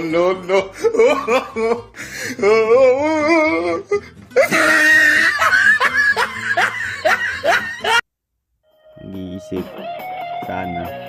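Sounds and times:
background music: 0.0 - 8.0, 8.6 - 11.0
person laughing: 0.0 - 8.0.

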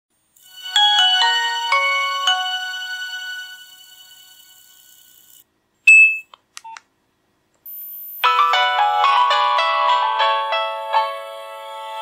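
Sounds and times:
phone startup tune: 0.4 - 5.1
polyphonic ringtone melody: 0.4 - 5.2, 8.2 - 12.0
short electronic beeps: 5.9 - 6.8.

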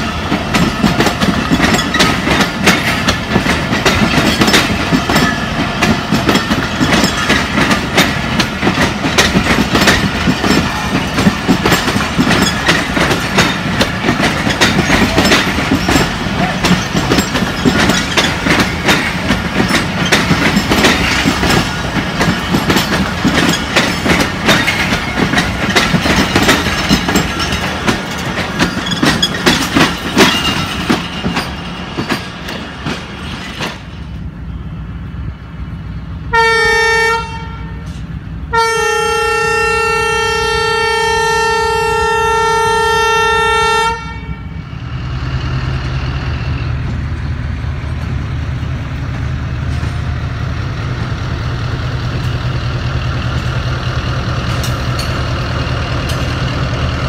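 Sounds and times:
train wheels clicking over rails: 0.0 - 34.3, 44.7 - 57.0
train horn blast: 36.3 - 44.6.

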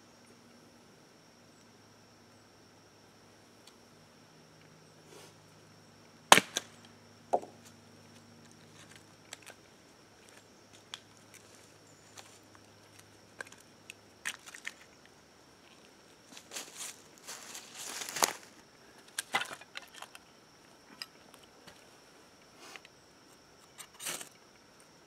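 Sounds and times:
hatchet splitting wood: 6.3 - 6.7
wood pieces clicking and knocking: 19.1 - 20.2.

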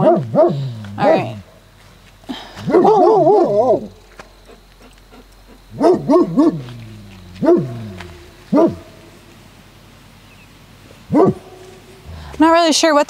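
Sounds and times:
dogs barking: 0.0 - 1.4, 2.6 - 9.2, 11.0 - 12.0.

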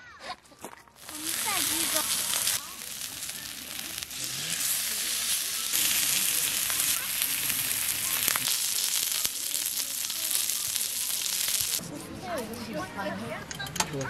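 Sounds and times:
pork sizzling in a pan: 1.0 - 11.8.

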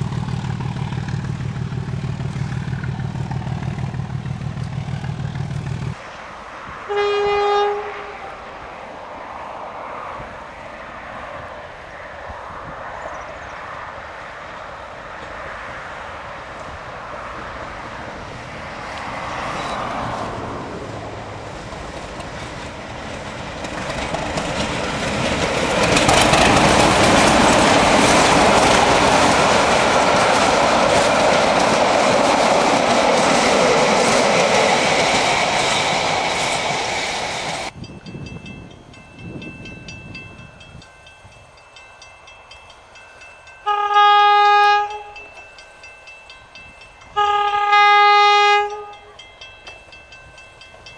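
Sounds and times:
diesel locomotive passing: 0.0 - 50.9
locomotive horn blast: 6.9 - 8.4, 43.6 - 45.3, 47.2 - 49.1.

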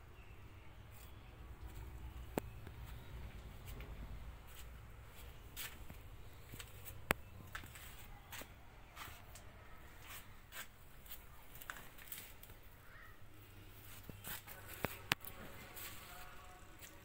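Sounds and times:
light footsteps: 0.9 - 12.2.

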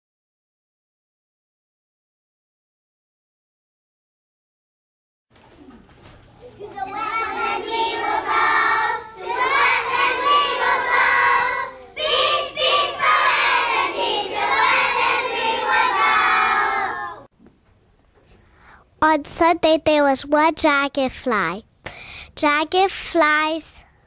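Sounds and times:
children singing in chorus: 6.6 - 17.3.

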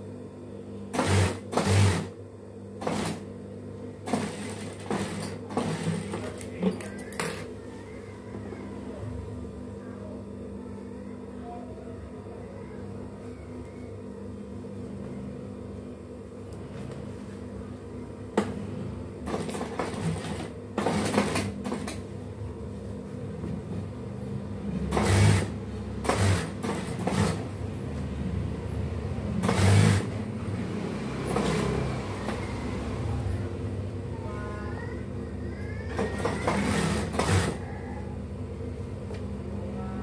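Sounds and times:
sewing machine stitching: 0.9 - 2.1, 2.8 - 3.2, 4.0 - 6.4, 19.2 - 22.0, 24.9 - 27.5, 29.4 - 30.2, 31.2 - 32.4, 35.9 - 37.6
sewing machine motor humming: 0.9 - 2.2, 2.8 - 3.2, 4.0 - 6.5, 19.2 - 22.0, 24.9 - 27.6, 29.3 - 30.3, 31.0 - 33.1, 35.9 - 37.8.

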